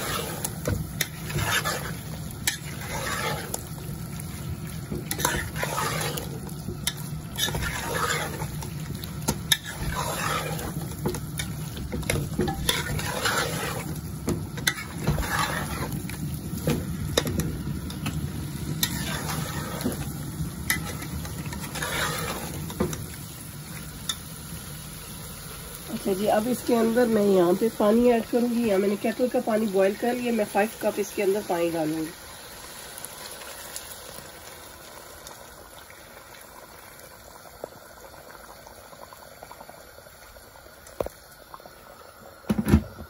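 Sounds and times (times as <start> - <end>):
metal spoon scraping a pot: 0.0 - 3.6, 5.1 - 8.6, 9.5 - 10.8, 11.4 - 14.0, 14.6 - 16.0, 18.8 - 20.0, 20.7 - 22.7
food sizzling in a pan: 0.0 - 43.0.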